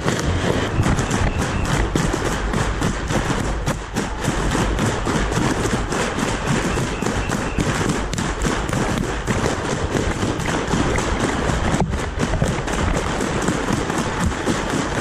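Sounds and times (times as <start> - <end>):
footsteps and knocks: 0.0 - 15.0
wind rumbling on microphone: 0.0 - 15.0.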